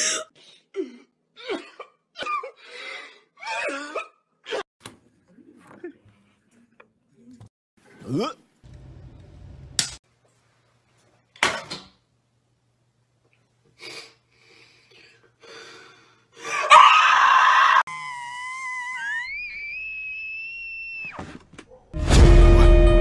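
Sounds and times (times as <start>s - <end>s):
woman screaming: 16.5s - 20.4s.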